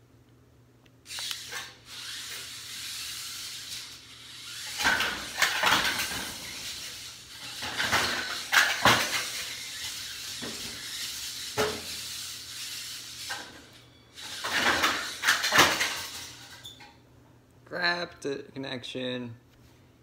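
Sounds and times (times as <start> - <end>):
electric motor whir: 1.1 - 13.4
metal parts clattering: 4.7 - 9.8, 14.2 - 16.8.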